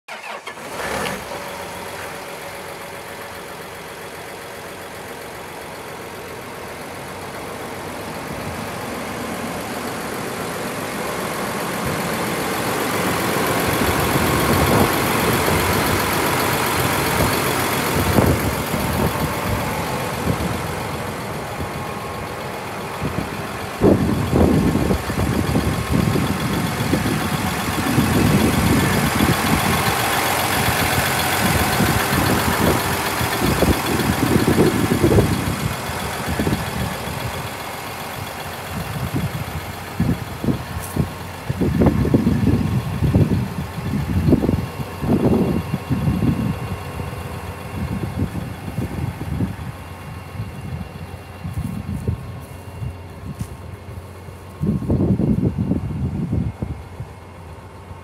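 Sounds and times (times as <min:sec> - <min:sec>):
tractor diesel engine idling: 0:00.0 - 0:58.0
low rumbles: 0:00.2 - 0:58.0.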